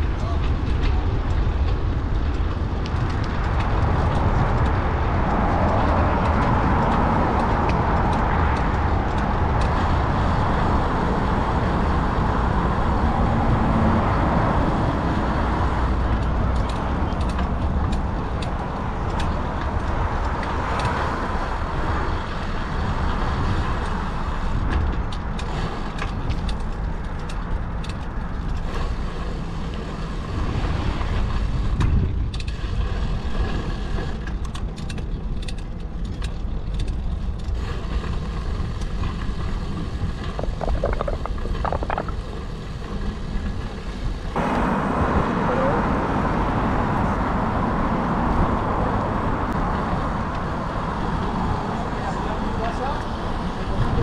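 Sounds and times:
road traffic noise: 0.0 - 54.0
wind rumbling on microphone: 0.0 - 54.0
light clicks and rattles: 16.0 - 21.2, 24.7 - 28.8, 34.2 - 39.4, 40.0 - 42.3.

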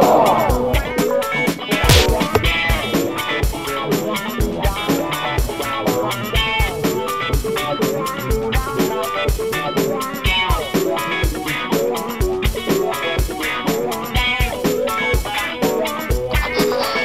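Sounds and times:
drum kit beat: 1.8 - 3.0.

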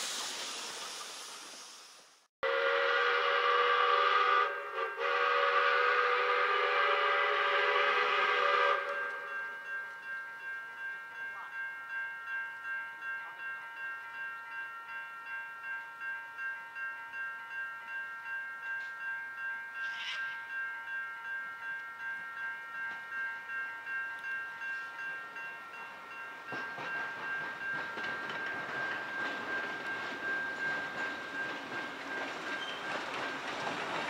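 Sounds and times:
steam locomotive approaching: 0.0 - 10.0, 22.7 - 34.0
level crossing warning bells: 4.4 - 33.8.

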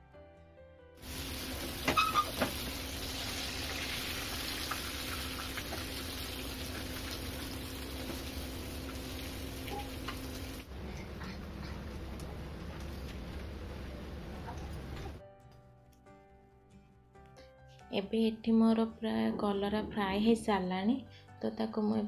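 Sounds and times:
vegetable slices deep-frying in oil: 1.0 - 10.7.

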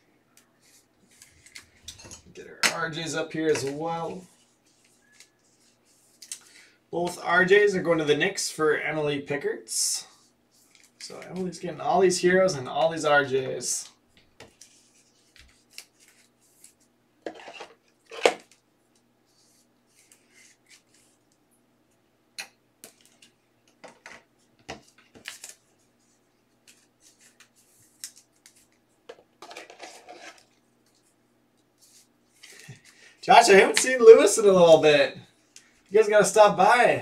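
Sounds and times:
cards rustling: 0.6 - 1.9, 24.7 - 28.8, 29.4 - 31.0.

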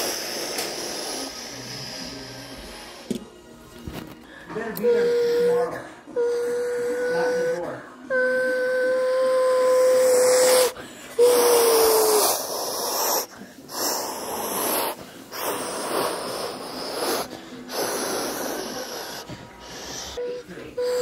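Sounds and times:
breathy hissing whooshes: 0.0 - 3.0, 10.0 - 20.2
person imitating a jet: 9.0 - 19.2.

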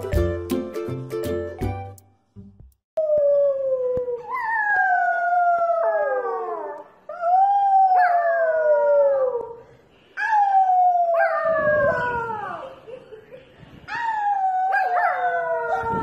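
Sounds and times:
puppy howling: 10.2 - 12.7, 13.9 - 16.0.

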